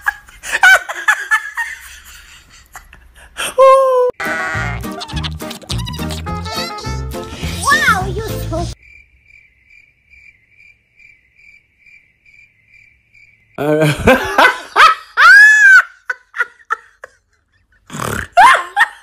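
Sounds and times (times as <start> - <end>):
crickets chirping: 8.8 - 13.7.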